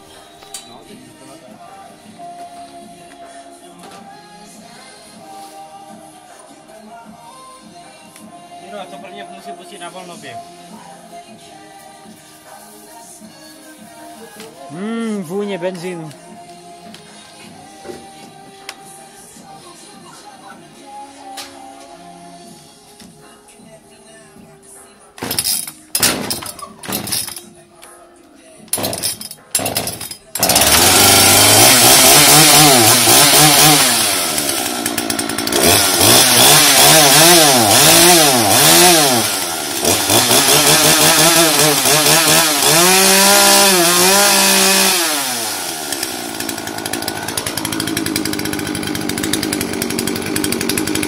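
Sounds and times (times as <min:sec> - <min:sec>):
chainsaw engine revving: 0:25.2 - 0:27.4, 0:28.7 - 0:51.0.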